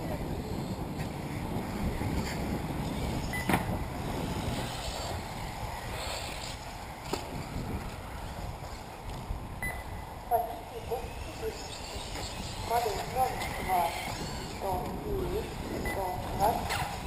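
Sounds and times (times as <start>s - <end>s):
wind rumbling on microphone: 0.0s - 17.0s.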